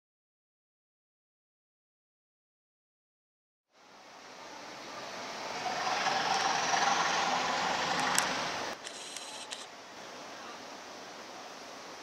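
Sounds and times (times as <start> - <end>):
steady low hiss: 3.7 - 12.0
diesel locomotive pulling away: 4.9 - 8.8
clicks: 8.0 - 9.7.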